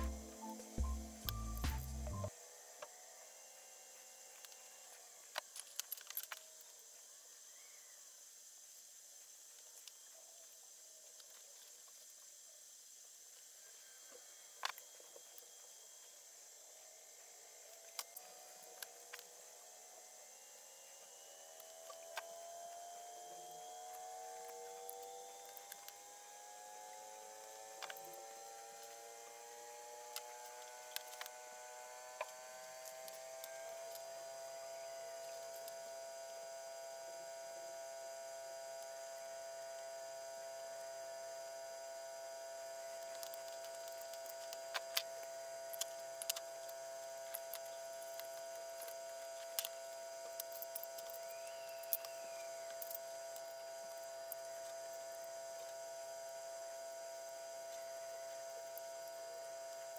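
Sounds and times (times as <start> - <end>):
faint electrical hum: 0.0 - 59.9
small clicks: 4.4 - 6.8, 23.8 - 26.0, 27.7 - 29.0, 30.1 - 31.4, 42.9 - 55.8.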